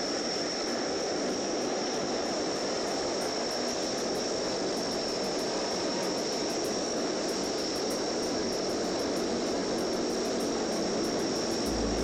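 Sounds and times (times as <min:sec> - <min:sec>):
turboprop engine drone: 0:09.2 - 0:12.0
high whine: 0:11.6 - 0:12.0.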